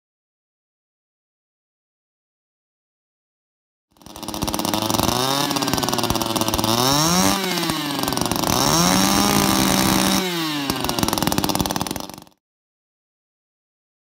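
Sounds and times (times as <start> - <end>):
string trimmer engine revving: 4.0 - 12.4.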